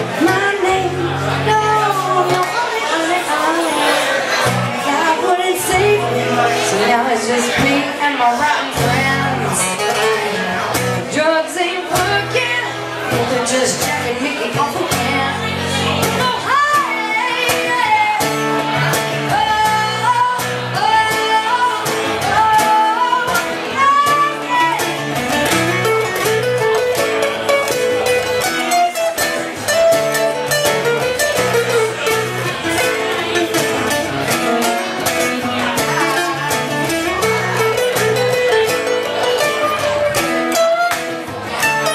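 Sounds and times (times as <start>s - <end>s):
woman singing into microphone: 0.0s - 10.4s, 11.0s - 25.1s
strummed acoustic guitar: 0.0s - 41.9s.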